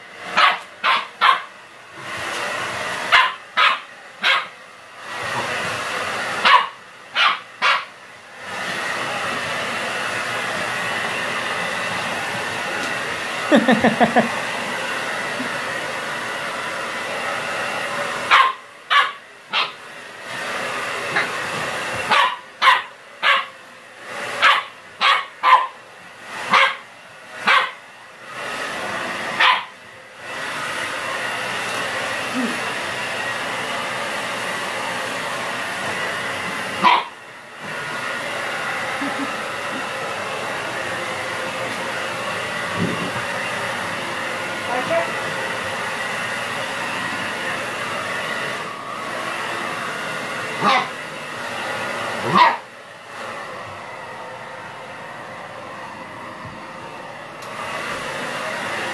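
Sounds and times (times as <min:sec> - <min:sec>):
hair dryer blowing: 0:00.0 - 0:58.9
puppy barking: 0:00.3 - 0:01.5, 0:03.1 - 0:04.6, 0:06.4 - 0:07.9, 0:18.3 - 0:19.8, 0:22.1 - 0:23.5, 0:24.4 - 0:25.8, 0:26.5 - 0:27.8, 0:29.4 - 0:29.8, 0:36.8 - 0:37.2, 0:50.6 - 0:50.9, 0:52.2 - 0:52.6.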